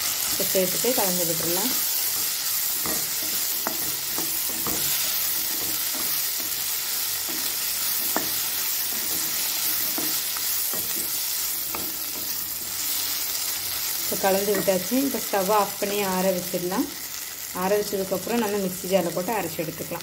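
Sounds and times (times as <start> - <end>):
food sizzling in oil: 0.0 - 20.0
spatula scraping pan: 0.2 - 14.9.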